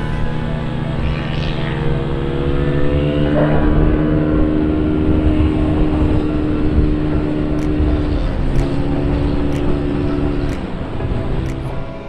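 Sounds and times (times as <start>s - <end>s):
scooter engine running: 0.0s - 11.8s
low wind rumble: 0.0s - 12.0s
faint ticks: 7.5s - 10.7s.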